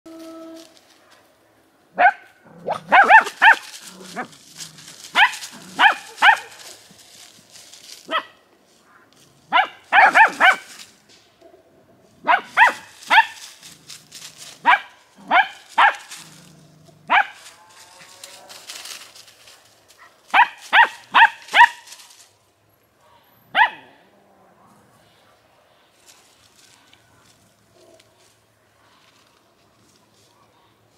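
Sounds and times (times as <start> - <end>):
puppies yapping: 2.0 - 6.8.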